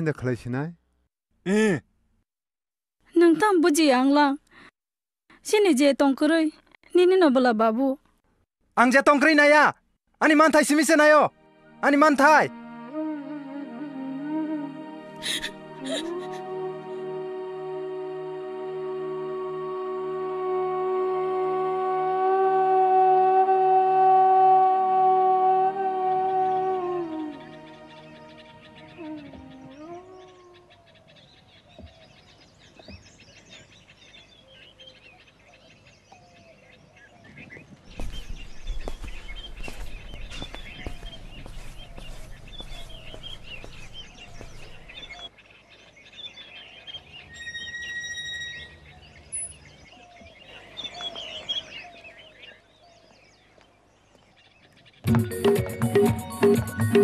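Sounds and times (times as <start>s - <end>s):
music: 11.1s - 19.7s, 55.0s - 57.0s
birds chirping: 26.0s - 57.0s.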